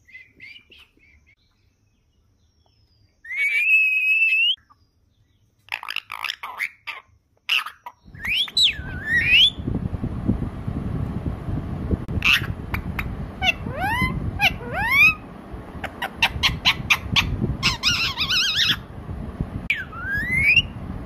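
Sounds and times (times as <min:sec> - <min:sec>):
parakeet whistling and calling: 0:00.0 - 0:01.4, 0:03.2 - 0:04.7, 0:05.7 - 0:09.6, 0:12.2 - 0:15.2, 0:15.8 - 0:18.9, 0:19.7 - 0:20.8
low noisy rumble: 0:08.0 - 0:21.0.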